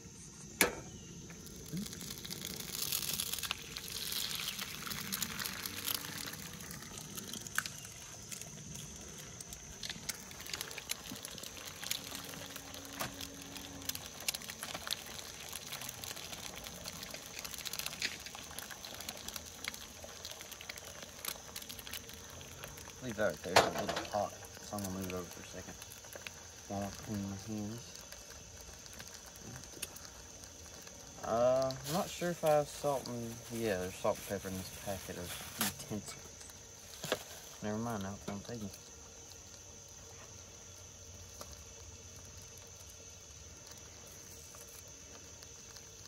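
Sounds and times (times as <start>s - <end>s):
eggs sizzling in a skillet: 0.0s - 46.0s.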